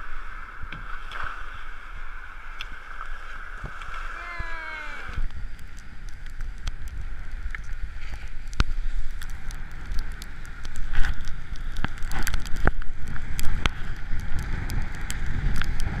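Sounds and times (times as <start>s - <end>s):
wind buffeting microphone: 4.7s - 16.0s.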